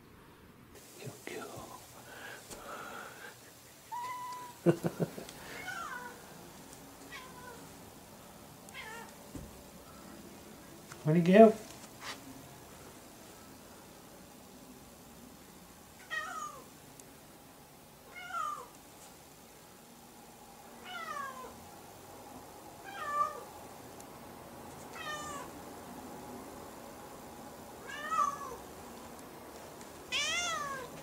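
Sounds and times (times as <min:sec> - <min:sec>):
cat meowing: 0:03.9 - 0:04.6, 0:05.6 - 0:06.2, 0:07.1 - 0:07.7, 0:08.7 - 0:09.1, 0:16.0 - 0:16.7, 0:18.1 - 0:18.7, 0:20.8 - 0:21.6, 0:22.8 - 0:23.5, 0:24.9 - 0:25.5, 0:27.8 - 0:28.6, 0:30.1 - 0:30.9.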